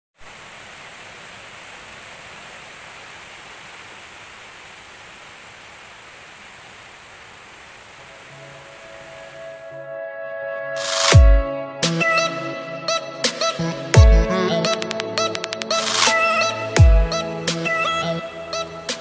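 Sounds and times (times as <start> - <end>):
steady hiss: 0.2 - 9.7
faint music: 8.0 - 11.4.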